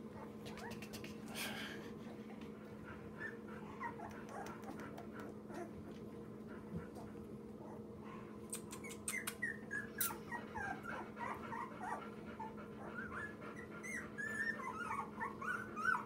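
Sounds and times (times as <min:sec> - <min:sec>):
puppy squeaking and whimpering: 0:00.2 - 0:01.0, 0:03.2 - 0:04.8, 0:08.5 - 0:16.0.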